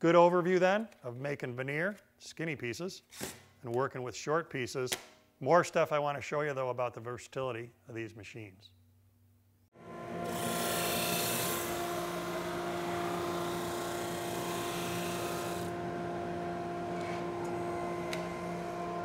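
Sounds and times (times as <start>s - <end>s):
drum sander humming: 9.8s - 19.0s.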